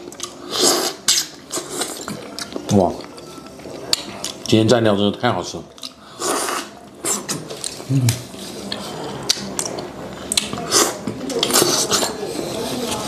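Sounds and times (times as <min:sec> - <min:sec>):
wet chewing and slurping: 0:00.1 - 0:04.5.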